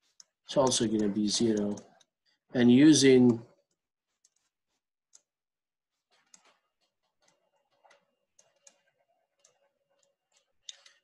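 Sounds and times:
stylus tapping on tablet screen: 0:05.9 - 0:11.0.

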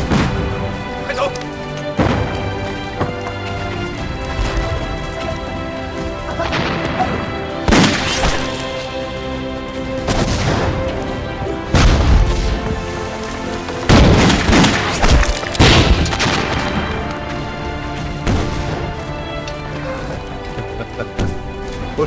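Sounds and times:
explosions: 0:00.0 - 0:00.6, 0:10.0 - 0:11.0, 0:11.7 - 0:12.7, 0:13.9 - 0:17.0
dramatic orchestral score: 0:00.0 - 0:22.0
gunfire: 0:07.7 - 0:08.5, 0:13.9 - 0:16.9.

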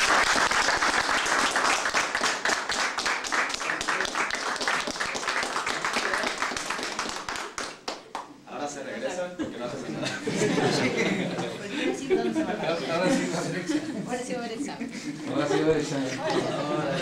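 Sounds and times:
crowd applauding: 0:00.0 - 0:08.3.

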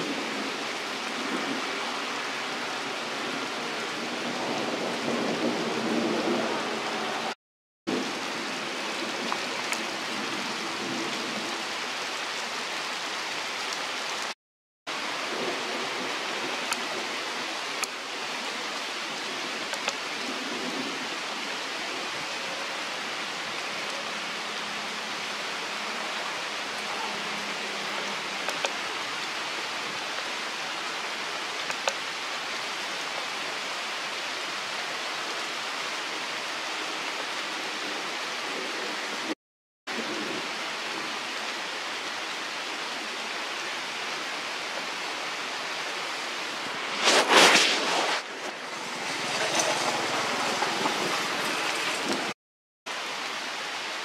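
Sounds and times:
steady outdoor hiss: 0:00.0 - 0:07.3, 0:14.9 - 0:39.3, 0:39.9 - 0:54.0.

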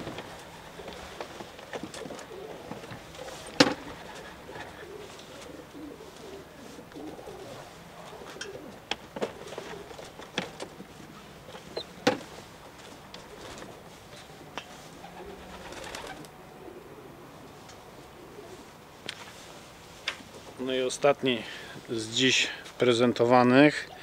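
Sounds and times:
pigeons cooing: 0:00.0 - 0:18.9.

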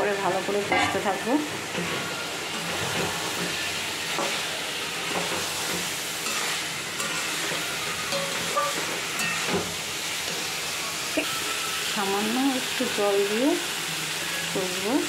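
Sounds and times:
food sizzling in oil: 0:00.0 - 0:15.0
spoon knocking and scraping pan: 0:00.6 - 0:10.5.

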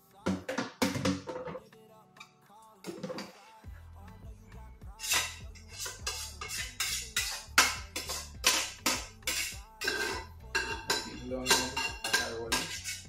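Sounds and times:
background music with beat: 0:00.0 - 0:13.0
steel cooking pot clanking: 0:05.0 - 0:13.0.

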